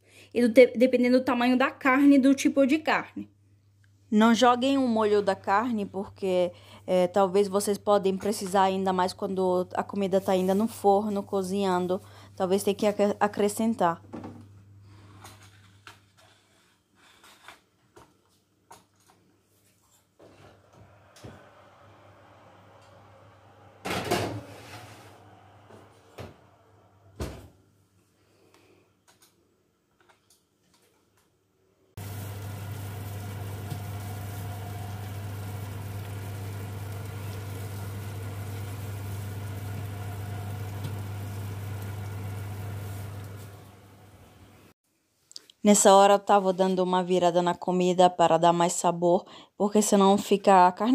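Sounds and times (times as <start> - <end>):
oven fan motor hum: 20.7 - 27.3, 32.0 - 44.7
rushing air: 20.8 - 23.8
steady hiss: 32.0 - 43.7.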